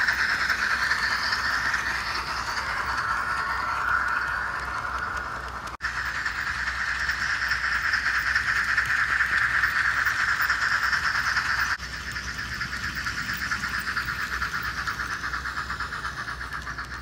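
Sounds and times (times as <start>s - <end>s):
model steam locomotive chuffing: 0.0s - 17.0s.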